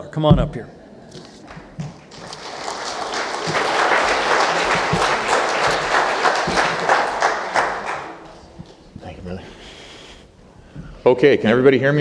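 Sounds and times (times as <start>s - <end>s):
congregation applauding: 1.4s - 8.9s.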